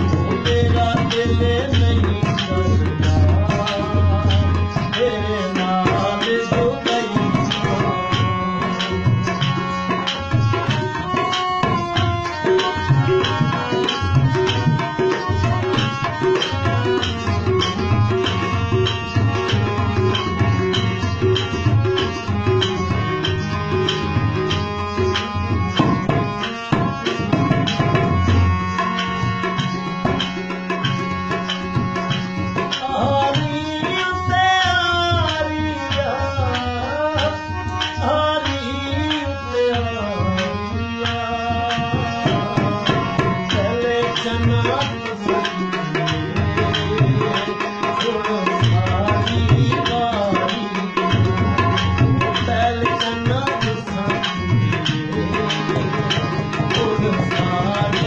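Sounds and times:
harmonium chords: 0.0 - 58.0
tabla strokes: 0.0 - 58.0
person singing: 52.4 - 58.0.

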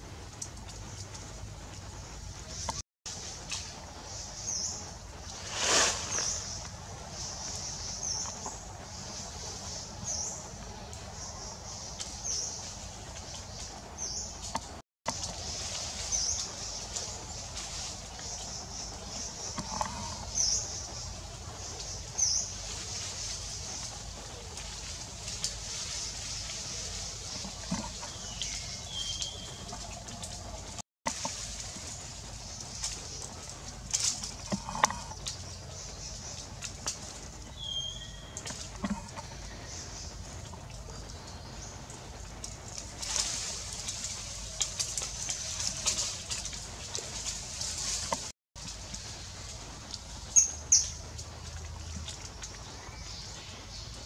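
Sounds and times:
steady high-pitched hiss: 0.0 - 51.5
short rush of noise: 5.3 - 6.6.

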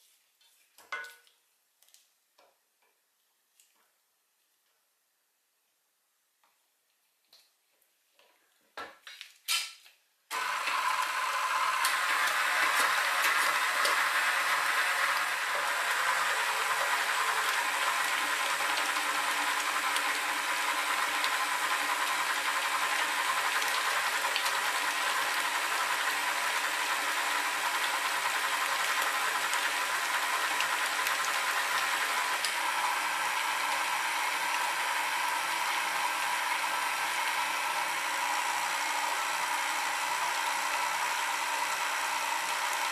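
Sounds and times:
stand mixer motor running: 10.3 - 42.9.

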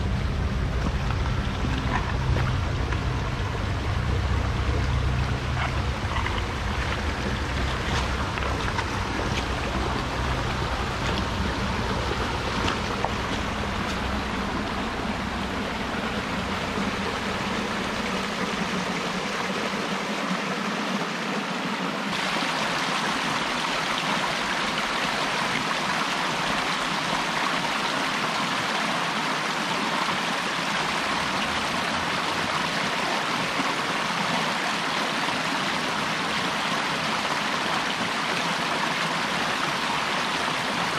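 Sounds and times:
creek splashing over rocks: 0.0 - 40.9.

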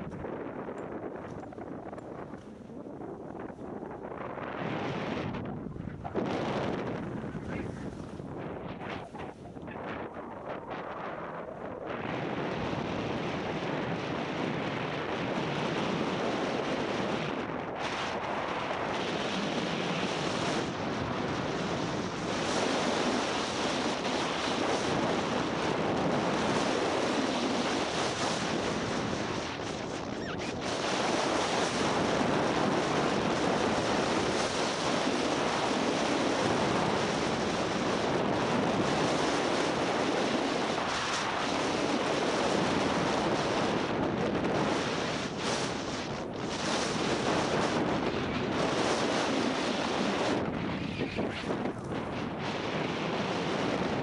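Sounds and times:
wind on microphone: 0.0 - 54.0
skis sliding over snow: 6.1 - 11.1.

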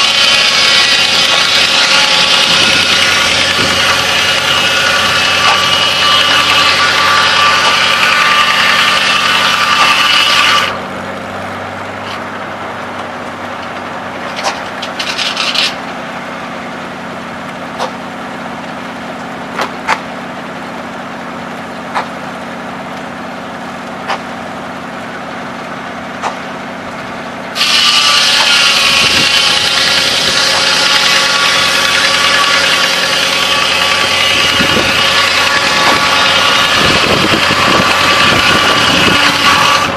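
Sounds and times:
knocks and clanks of log carriage: 0.0 - 10.7, 12.0 - 15.8, 17.7 - 18.0, 19.5 - 20.1, 21.6 - 22.2, 26.2 - 26.5, 27.8 - 39.9
circular saw blade cutting log: 0.0 - 39.9
engine humming: 0.0 - 39.9.

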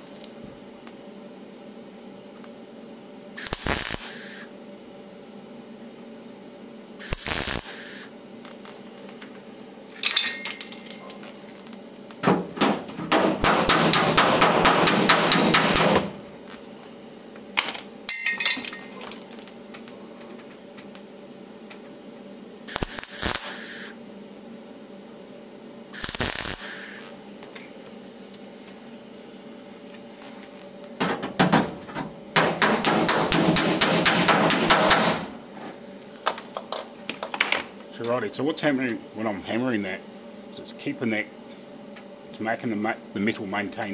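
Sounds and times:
welder crackling: 3.4 - 4.5, 7.0 - 9.2, 22.7 - 23.9, 26.0 - 27.6.

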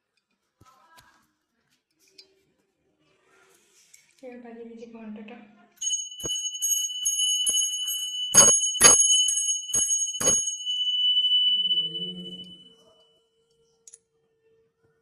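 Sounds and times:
hand bell clanging: 5.8 - 13.0.

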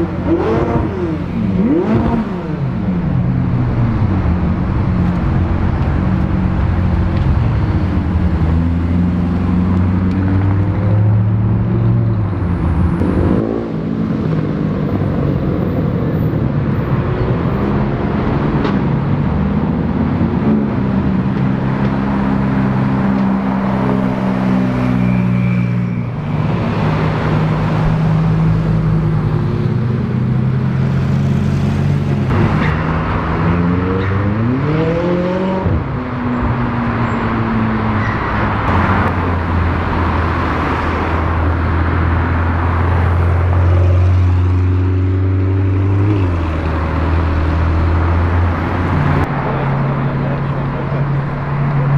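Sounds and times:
engine revving: 0.0 - 7.3, 26.1 - 36.0.

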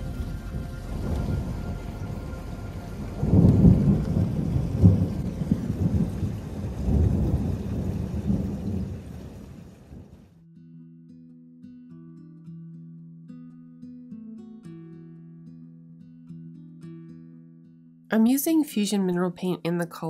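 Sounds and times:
steady rain: 0.0 - 10.3
thunder rolling: 0.0 - 10.3.

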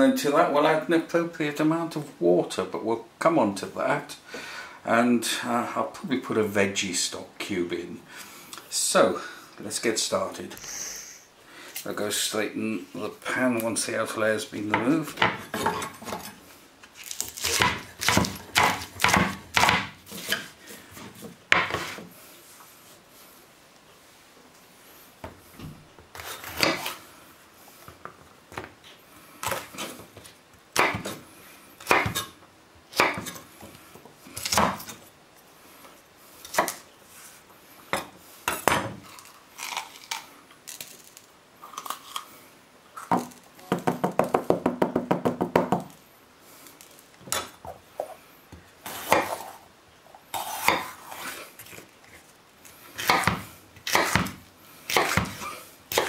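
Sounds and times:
knife chopping on wooden board: 17.4 - 20.5, 21.5 - 22.0, 30.8 - 31.2, 31.8 - 32.3, 33.0 - 33.4, 53.0 - 56.0.

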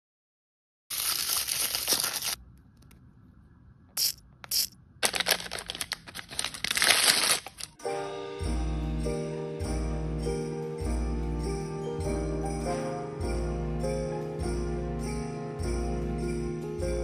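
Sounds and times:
plastic wrapping crinkling: 0.9 - 2.4, 5.0 - 7.8
music with bell-like tones: 7.8 - 17.0.

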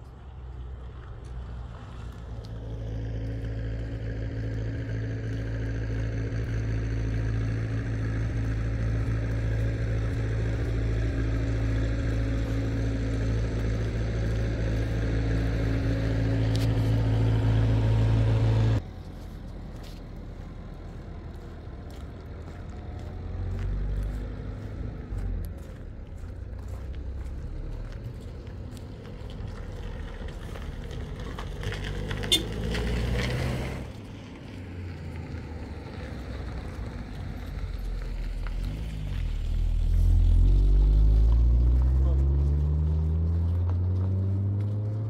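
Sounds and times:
vehicle engine running: 0.0 - 45.0
footsteps on gravel: 8.3 - 18.0, 18.8 - 45.0.

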